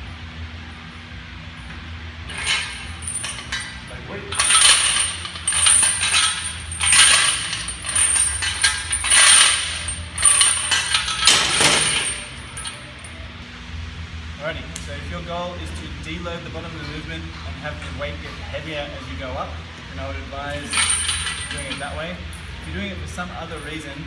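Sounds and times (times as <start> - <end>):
steel chains clinking and rattling: 2.3 - 13.2, 20.4 - 24.0.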